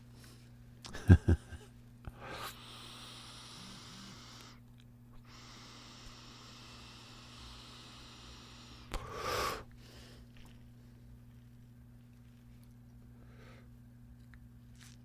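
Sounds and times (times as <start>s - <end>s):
breathy hissing inhale: 2.1s - 4.6s, 5.2s - 10.6s, 13.1s - 13.8s.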